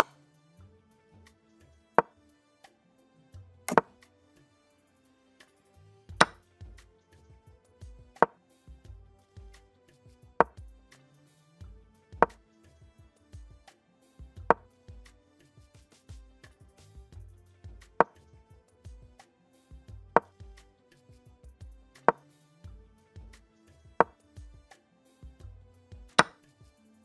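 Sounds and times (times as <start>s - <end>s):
soft background music: 0.0s - 27.0s
wooden chess piece clack: 26.2s - 26.4s.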